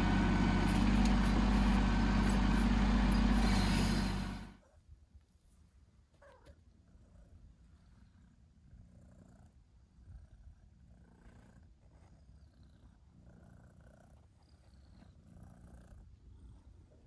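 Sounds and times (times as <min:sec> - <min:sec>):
cat purring: 0:06.8 - 0:16.7.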